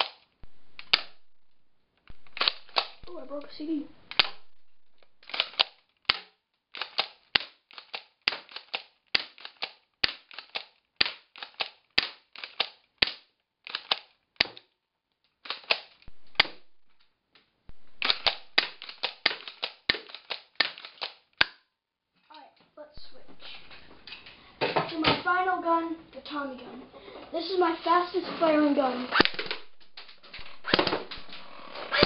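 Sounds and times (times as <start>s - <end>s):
airsoft shotgun shots: 0.0s - 6.2s, 15.6s - 17.0s, 17.7s - 20.8s, 29.1s - 32.0s.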